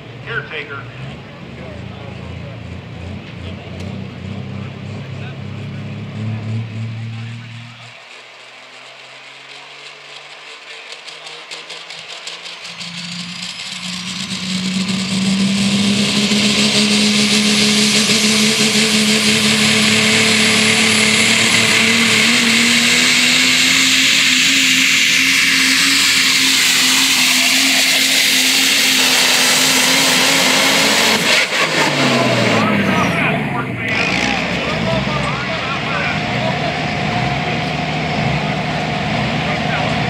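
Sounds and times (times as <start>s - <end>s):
diesel pickup engine at full throttle: 0.0s - 40.0s
turbocharger hiss and whistle: 11.8s - 33.1s.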